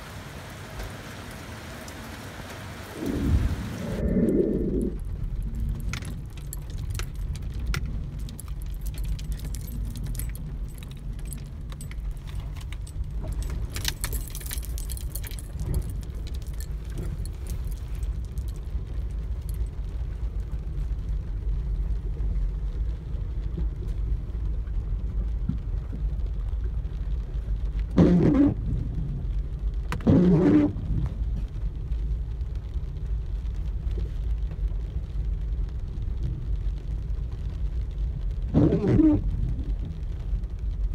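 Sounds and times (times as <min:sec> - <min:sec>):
car cabin low rumble: 0:03.0 - 0:40.9
light tapping and jingling: 0:05.3 - 0:19.8.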